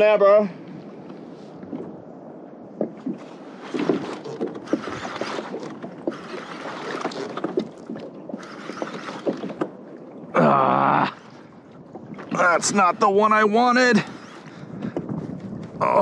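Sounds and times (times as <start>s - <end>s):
water lapping against a hull: 0.0s - 16.0s
light knocks on a hull: 2.7s - 4.8s.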